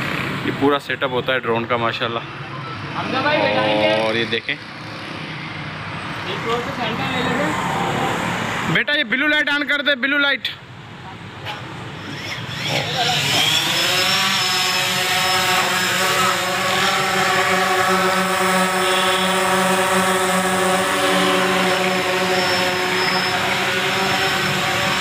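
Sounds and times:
drone propellers whining: 3.0s - 5.5s, 11.9s - 25.0s.

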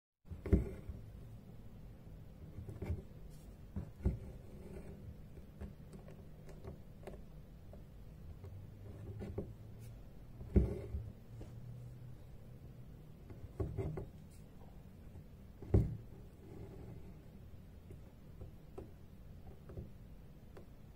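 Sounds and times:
low steady hum: 0.3s - 20.9s
soft taps and thumps: 2.6s - 4.4s, 15.6s - 16.2s.

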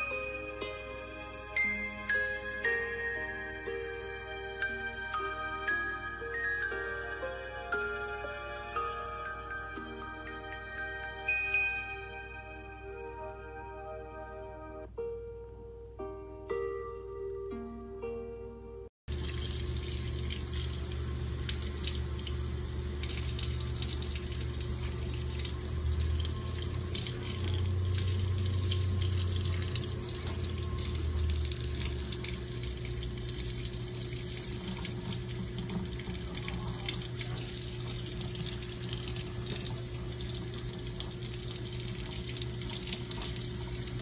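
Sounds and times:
faucet water splashing: 19.1s - 44.0s.

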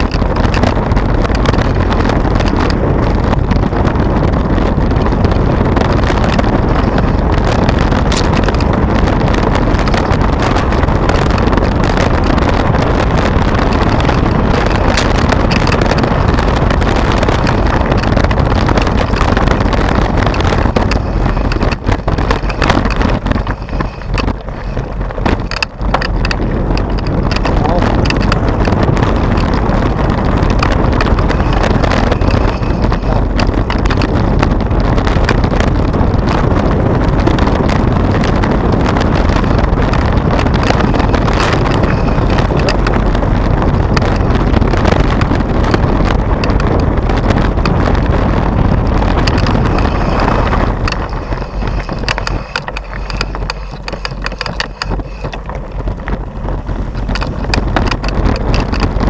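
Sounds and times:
bike rattling: 0.0s - 59.0s.

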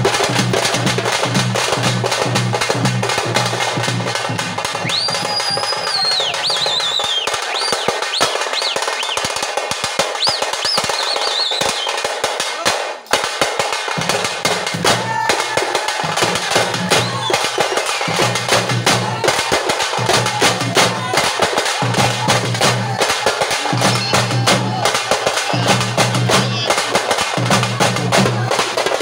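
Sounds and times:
frame drums beaten fast: 0.0s - 29.0s
high whistle-like glides: 4.7s - 9.3s.

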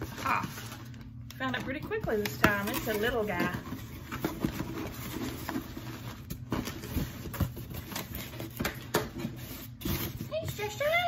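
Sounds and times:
cardboard box rustling and scraping: 2.6s - 11.0s.

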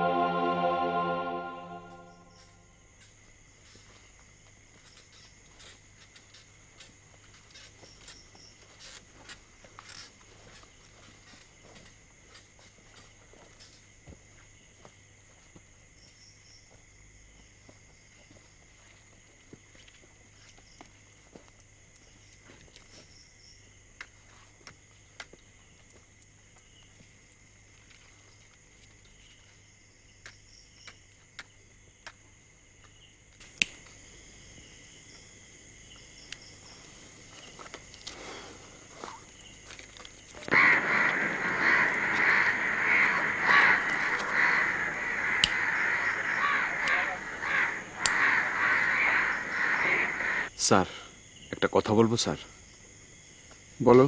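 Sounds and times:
faint clicks: 39.8s - 50.2s
crows cawing: 40.4s - 50.5s.

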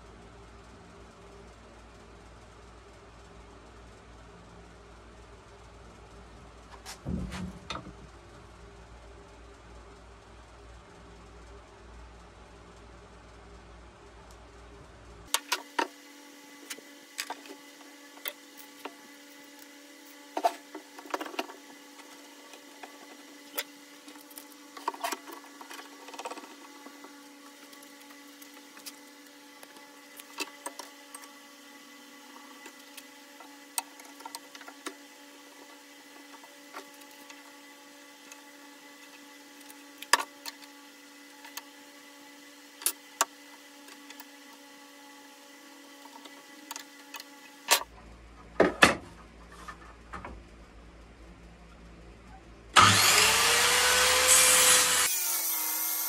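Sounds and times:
faint steady hum: 0.0s - 55.1s.

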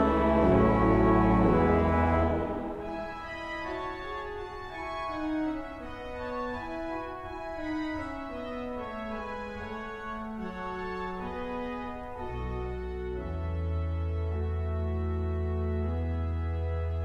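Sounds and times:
pipe organ playing softly: 0.0s - 17.0s.

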